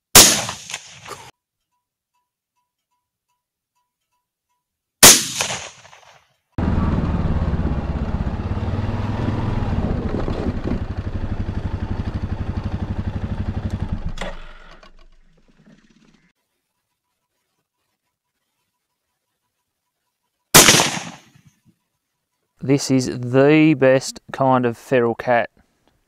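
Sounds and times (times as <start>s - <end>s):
rifle shot: 0.1s - 1.3s, 5.0s - 6.2s, 20.6s - 21.4s
quad bike engine idling: 6.6s - 16.3s.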